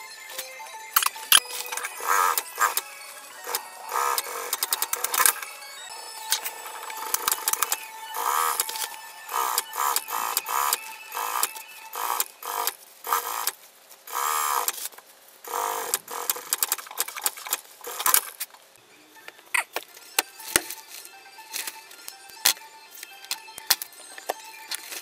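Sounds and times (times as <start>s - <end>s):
sewing machine stitching: 9.3s - 14.8s, 15.5s - 18.3s.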